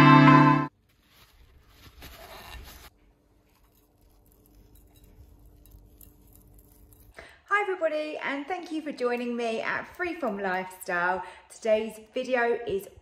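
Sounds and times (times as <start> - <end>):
guitar tune: 0.0 - 0.7.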